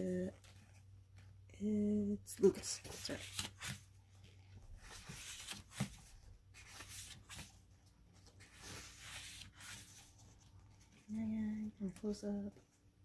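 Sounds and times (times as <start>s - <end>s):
paper pages rustling: 2.5s - 11.1s.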